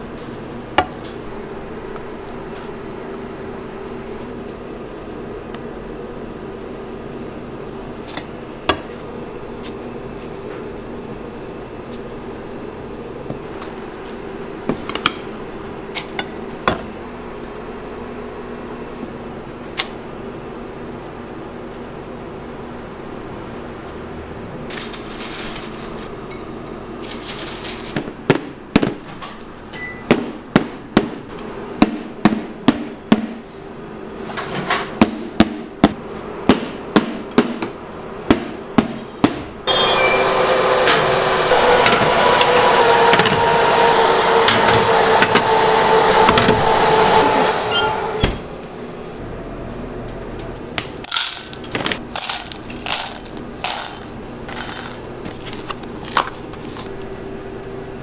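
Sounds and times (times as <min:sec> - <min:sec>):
loud humming noise: 0:30.5 - 0:58.0
chocolate clattering into metal bowl: 0:51.1 - 0:55.1.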